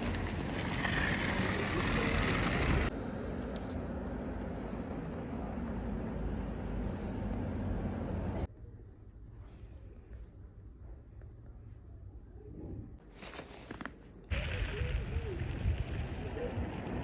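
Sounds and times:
vehicle rumbling: 0.0 - 8.5, 14.3 - 17.0.

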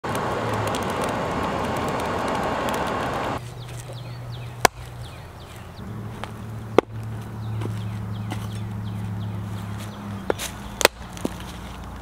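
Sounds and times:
forge fire rushing: 0.1 - 3.4
hatchet chopping wood: 4.6 - 4.9, 10.3 - 11.4.

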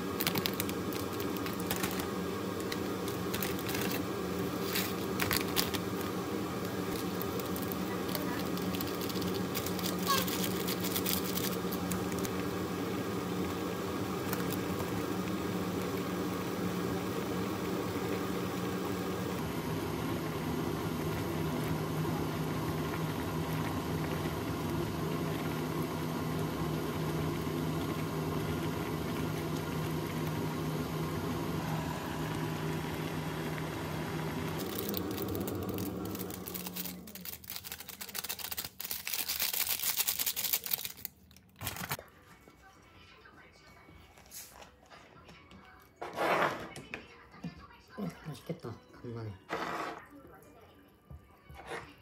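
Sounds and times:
electric motor hum: 0.0 - 38.7.

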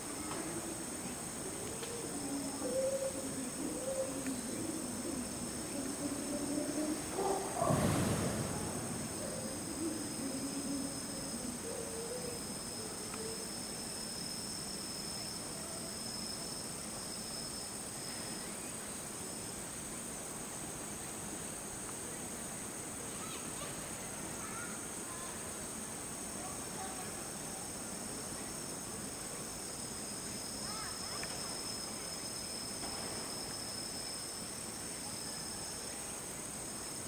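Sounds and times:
insects singing: 0.0 - 20.0, 20.6 - 37.0.

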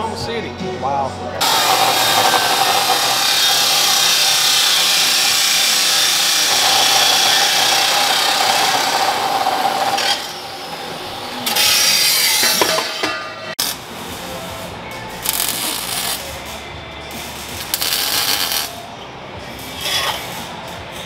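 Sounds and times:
chop saw grinding steel: 1.4 - 13.7.

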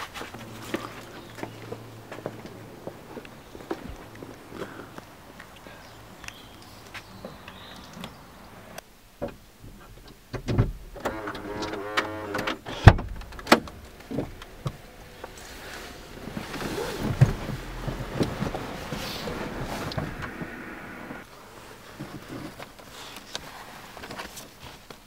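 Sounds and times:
plastic sun visor creak: 11.0 - 14.3
paper and clothing rustling: 15.4 - 20.2, 21.5 - 25.0.

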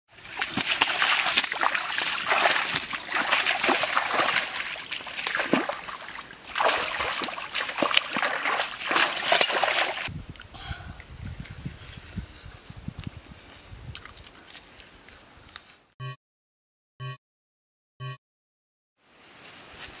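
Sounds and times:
trickling water: 0.1 - 10.1
water splashing from wading: 0.1 - 10.1.

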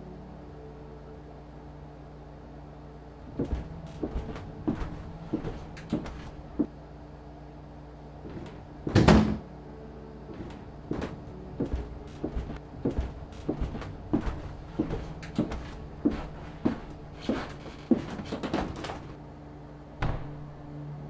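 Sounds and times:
footsteps on wooden floor: 3.3 - 6.7, 8.2 - 9.4, 10.3 - 19.2
loud door-like thud: 8.9 - 9.4, 20.0 - 20.3.

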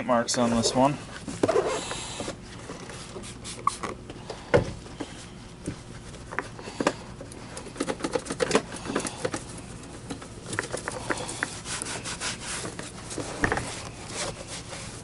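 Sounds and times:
cloth rubbing on plastic: 11.2 - 15.0.

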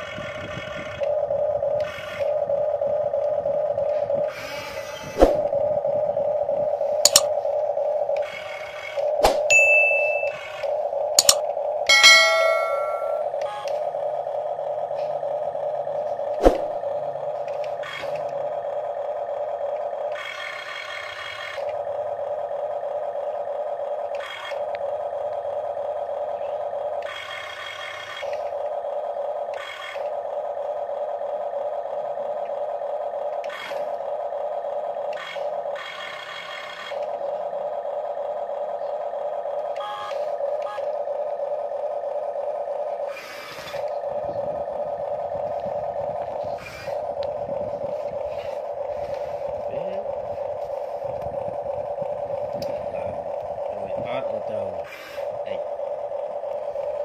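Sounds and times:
gear motors whirring: 0.0 - 9.5, 10.2 - 11.7, 12.9 - 57.0
electronic engine hum: 0.0 - 57.0
sharp click: 7.0 - 7.3, 11.2 - 13.2.

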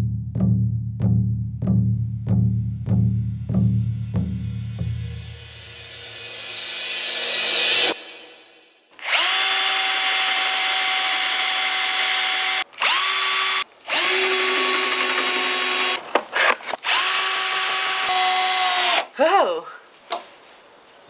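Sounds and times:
music track: 0.0 - 8.7
power drill whining: 9.0 - 19.1.

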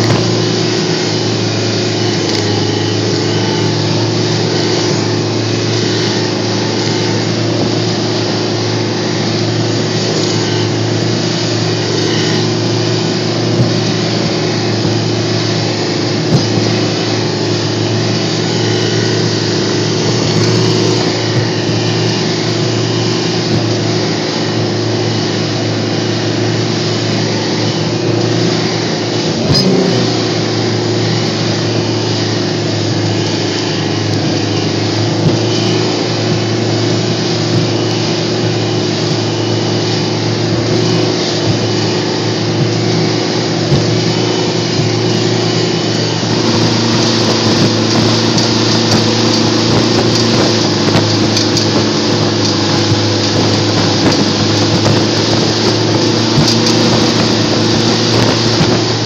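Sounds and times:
boat engine running: 0.0 - 59.0
rush of wind and water: 0.0 - 59.0
hull knocking on waves: 46.3 - 59.0.

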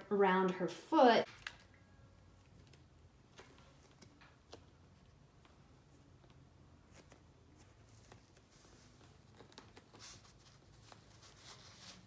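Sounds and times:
tape rustling and crackling: 1.2 - 12.0.

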